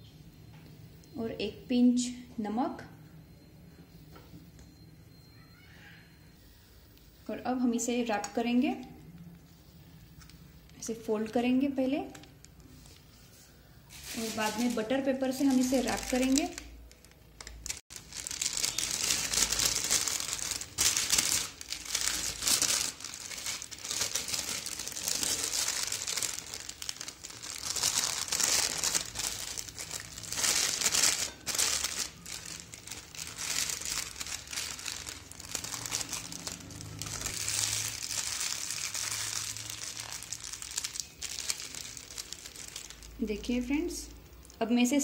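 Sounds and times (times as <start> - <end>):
paper crinkling and rustling: 12.1 - 43.2.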